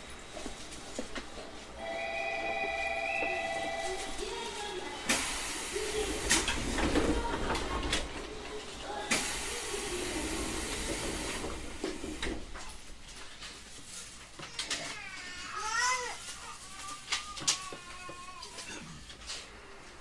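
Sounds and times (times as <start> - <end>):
compressed air hiss: 5.0 - 6.5, 8.9 - 12.4.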